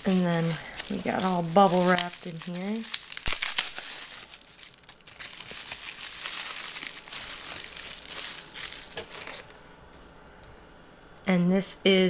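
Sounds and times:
bubble wrap crinkling and crackling: 0:00.0 - 0:09.6.

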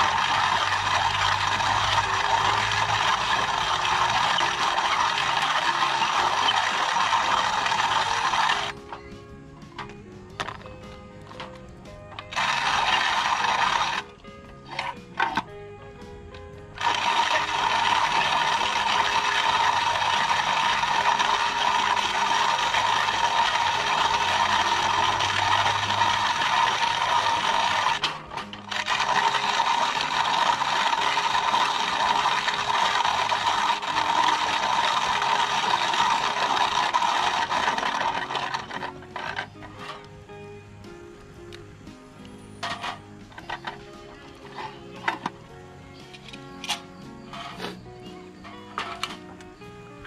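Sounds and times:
hand coffee grinder grinding: 0:00.0 - 0:08.8, 0:12.2 - 0:15.5, 0:16.7 - 0:40.2, 0:42.6 - 0:45.4.

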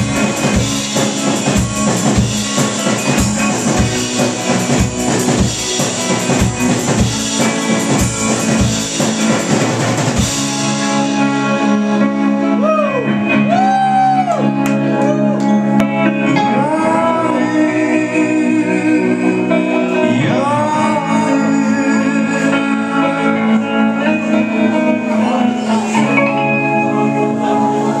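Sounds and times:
electric guitar chords: 0:00.0 - 0:28.0
man singing: 0:16.1 - 0:28.0.

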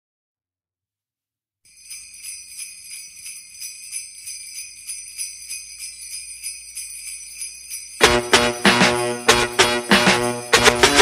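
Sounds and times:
sleigh bells shaking: 0:01.7 - 0:11.0.

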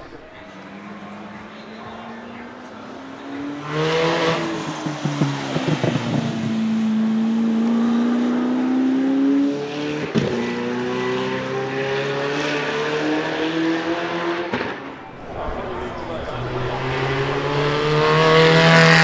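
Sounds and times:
sports car engine accelerating: 0:00.1 - 0:19.0.

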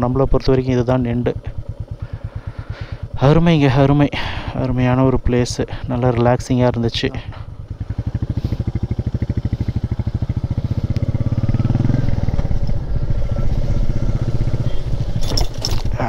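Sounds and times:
motorcycle engine thumping: 0:07.1 - 0:16.0.

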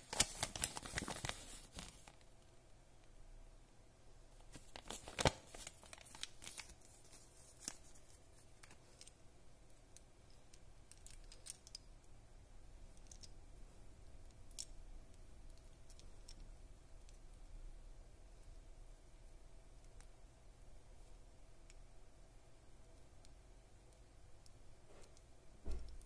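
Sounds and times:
paper crackle: 0:00.0 - 0:02.2, 0:04.5 - 0:09.1.

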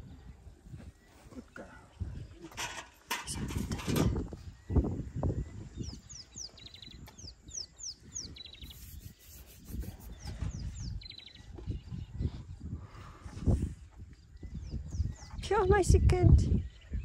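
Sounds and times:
songbird calling: 0:04.3 - 0:12.2.

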